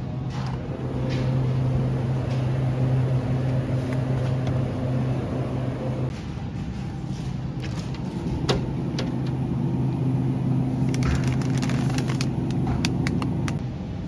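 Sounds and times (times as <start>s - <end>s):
refrigerator hum: 0.0s - 14.0s
plastic packaging crinkling: 10.8s - 13.6s.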